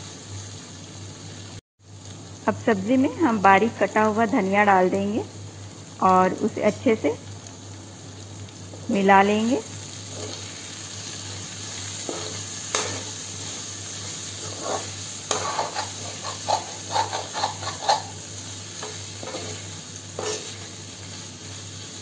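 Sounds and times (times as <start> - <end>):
vegetables sizzling in a pan: 0.0 - 22.0
metal spoon scraping a pan: 10.1 - 10.5, 11.9 - 20.8.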